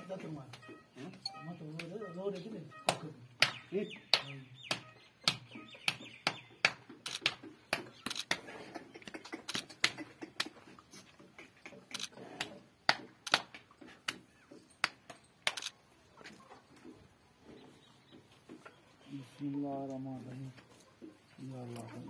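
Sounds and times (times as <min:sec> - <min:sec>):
sharp clicks and ticks: 0:00.5 - 0:10.6, 0:11.2 - 0:14.2, 0:14.8 - 0:15.8.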